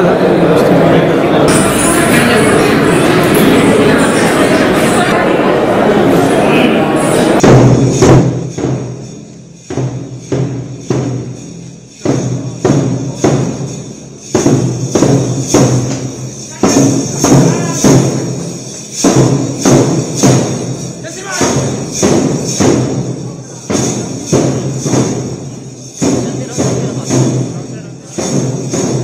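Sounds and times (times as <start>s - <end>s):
drum band playing: 1.5s - 5.2s, 7.0s - 29.0s
bass drum strikes: 7.4s - 9.0s.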